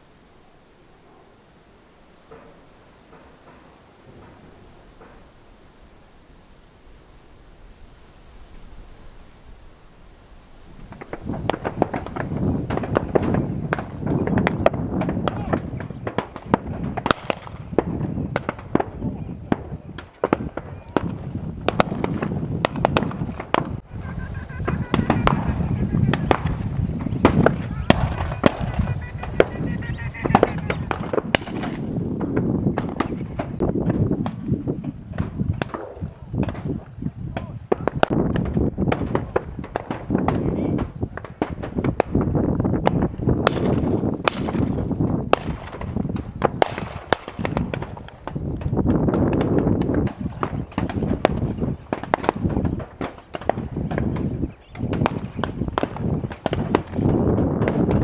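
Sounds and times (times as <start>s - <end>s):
shotguns firing: 2.0s - 5.9s, 10.9s - 18.9s, 24.7s - 29.6s, 30.3s - 34.0s, 43.5s - 48.0s
wind rumble on microphone: 2.1s - 58.0s.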